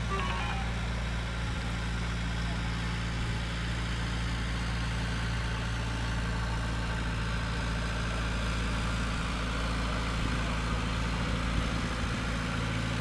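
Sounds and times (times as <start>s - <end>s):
tow tractor engine droning: 0.0s - 13.0s.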